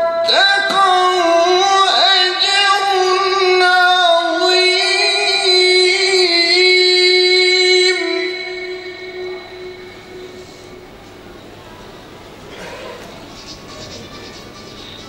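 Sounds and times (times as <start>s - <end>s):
man reciting melodically: 0.0s - 10.9s.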